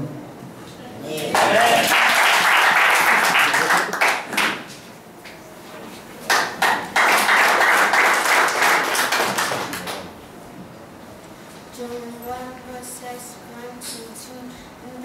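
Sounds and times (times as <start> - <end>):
small group clapping: 1.1 - 5.4, 6.2 - 10.2.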